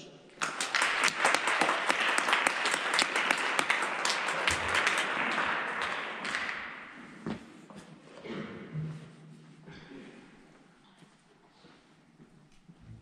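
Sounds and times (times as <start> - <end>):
audience applauding: 0.4 - 7.1.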